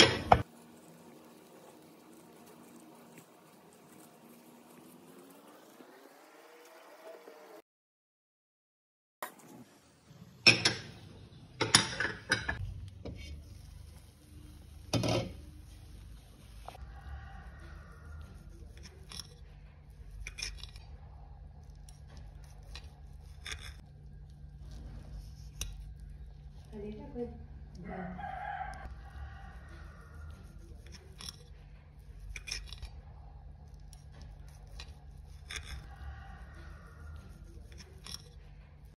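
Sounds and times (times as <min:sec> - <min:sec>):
low steady hum: 0:12.3 - 0:38.9
fork clicking and scraping plate: 0:18.6 - 0:20.8, 0:21.7 - 0:23.8, 0:30.3 - 0:33.0, 0:33.7 - 0:36.0, 0:37.2 - 0:38.5.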